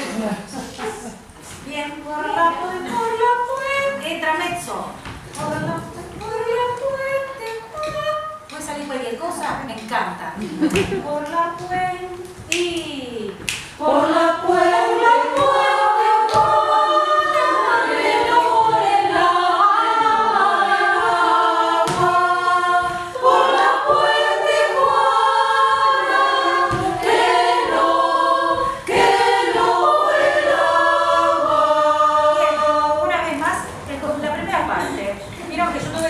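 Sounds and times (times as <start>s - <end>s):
choir singing a cappella: 2.0s - 4.0s, 13.8s - 36.0s.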